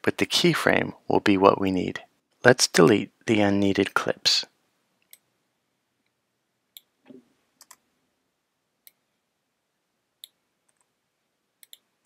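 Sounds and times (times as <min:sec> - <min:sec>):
computer mouse clicks: 0:06.8 - 0:07.8, 0:10.2 - 0:10.9, 0:11.6 - 0:11.9.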